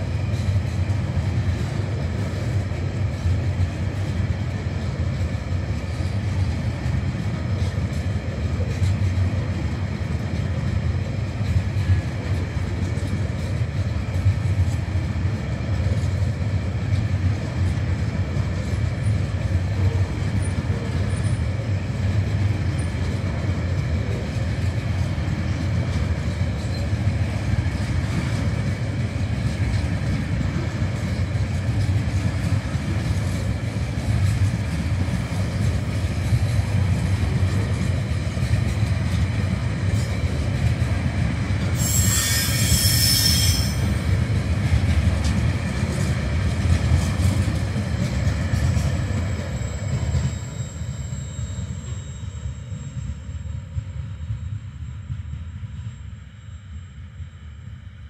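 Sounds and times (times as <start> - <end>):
freight train wheels rumbling: 0.0 - 58.0
high-pitched wheel squeal: 41.8 - 44.0, 49.5 - 53.3.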